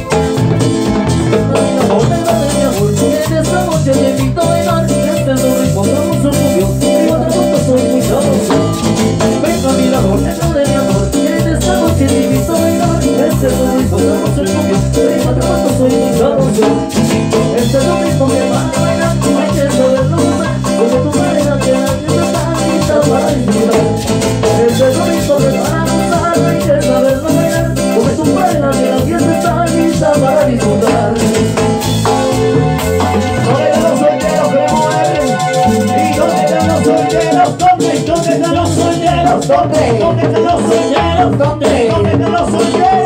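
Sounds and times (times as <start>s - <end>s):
bass pulse: 0.0s - 33.9s
live band playing latin dance music: 0.0s - 43.0s
people singing: 1.3s - 31.6s, 32.3s - 43.0s.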